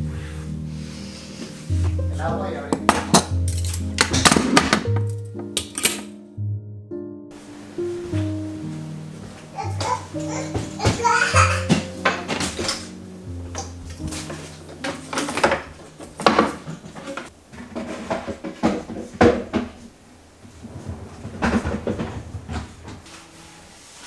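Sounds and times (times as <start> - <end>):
background music: 0.0 - 17.3
kitchen drawers knocking: 2.3 - 6.2, 9.7 - 19.9, 20.6 - 23.1.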